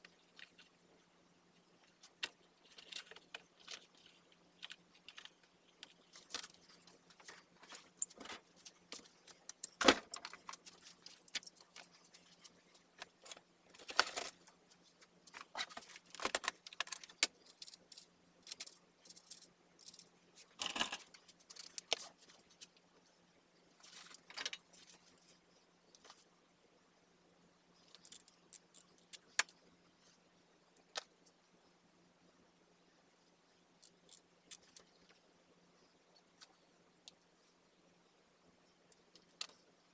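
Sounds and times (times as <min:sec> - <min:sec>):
clinks and rattles of handling wires: 0:00.0 - 0:23.0, 0:23.7 - 0:26.3, 0:33.8 - 0:35.2
faint low hum: 0:00.0 - 0:39.9.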